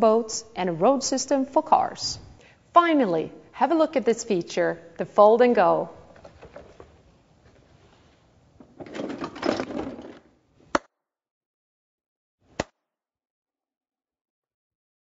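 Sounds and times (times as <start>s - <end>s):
plastic parts rattling: 8.6s - 10.3s.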